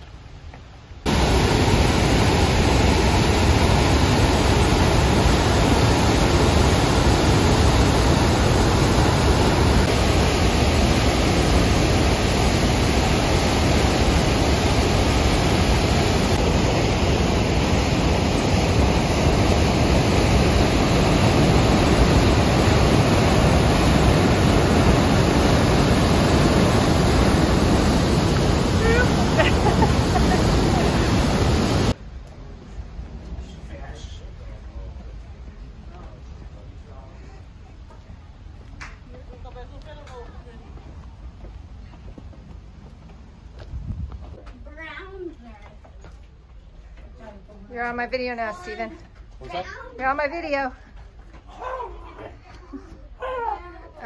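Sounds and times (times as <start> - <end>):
waterfall rushing: 1.1 - 32.0.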